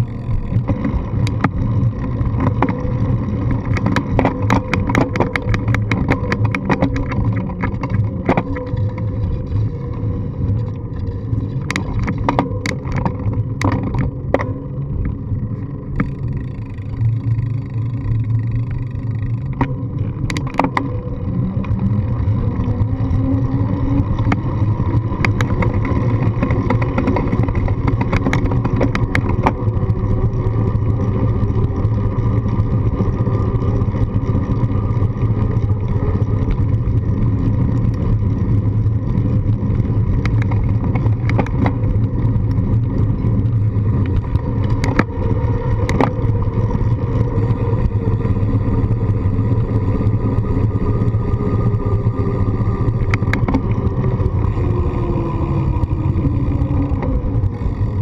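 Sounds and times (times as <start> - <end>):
wheels knocking over path joints: 0.0 - 10.8, 17.8 - 50.0
road vibration rumble: 0.0 - 58.0
wind: 0.0 - 58.0.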